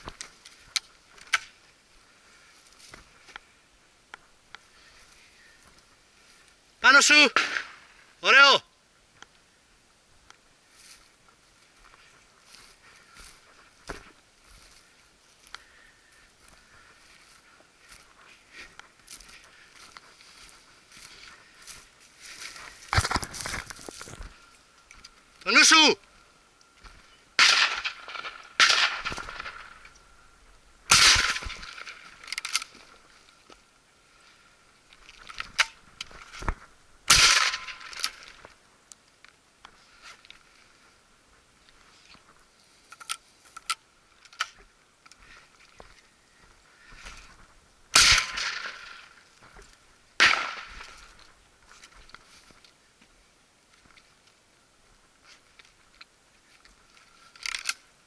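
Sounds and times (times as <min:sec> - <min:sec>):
shotgun shots with echo: 0:27.4 - 0:29.6, 0:30.9 - 0:31.8, 0:37.1 - 0:37.8, 0:48.0 - 0:48.9, 0:50.2 - 0:50.8.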